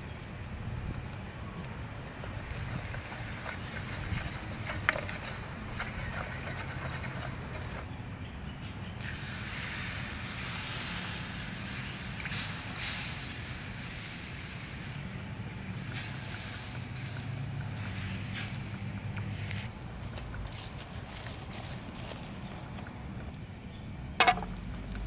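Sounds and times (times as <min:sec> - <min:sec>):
wooden spoon stirring in a pan: 0:02.6 - 0:07.8
milk hissing and sizzling in pan: 0:09.0 - 0:19.7.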